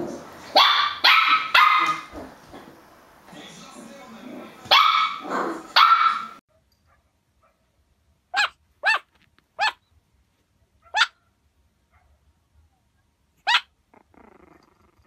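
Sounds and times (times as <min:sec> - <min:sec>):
puppy barking high-pitched yaps: 0:00.5 - 0:02.2, 0:04.7 - 0:07.6, 0:08.3 - 0:09.8, 0:10.8 - 0:11.3, 0:13.4 - 0:13.8.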